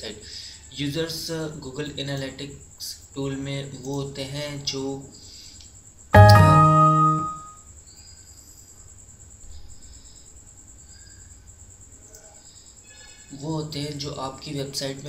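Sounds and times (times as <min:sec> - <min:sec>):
computer warning chime: 0:06.2 - 0:07.5.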